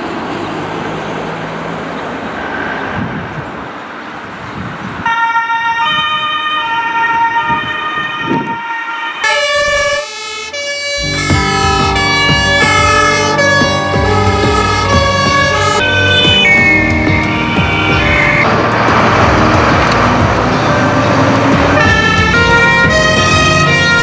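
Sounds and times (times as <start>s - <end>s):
two-tone emergency siren: 5.0s - 19.9s, 20.8s - 24.0s
truck engine running: 10.9s - 24.0s
deep engine rumble: 11.0s - 24.0s.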